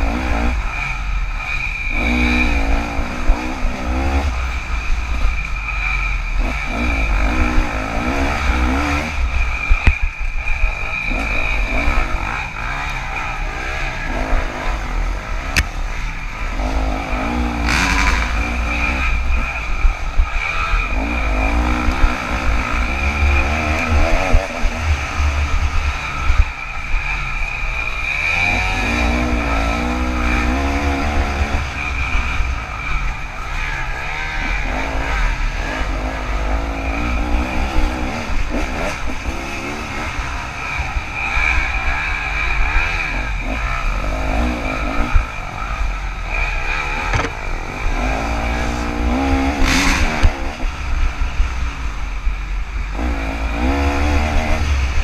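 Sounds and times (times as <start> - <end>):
dirt bike engine revving: 0.0 - 55.0
bike knock: 47.1 - 47.4.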